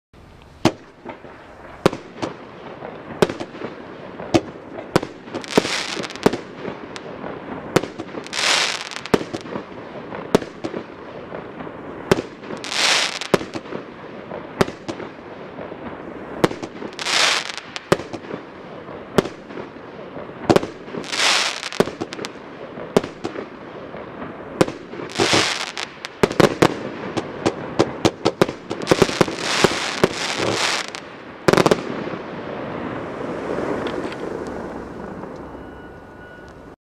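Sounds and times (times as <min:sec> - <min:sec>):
fireworks rushing burst: 0:00.5 - 0:35.4.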